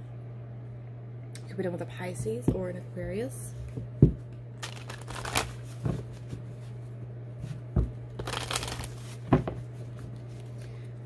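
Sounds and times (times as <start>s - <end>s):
low steady hum: 0.0s - 11.0s
cards rustling: 4.6s - 5.9s, 8.2s - 9.2s.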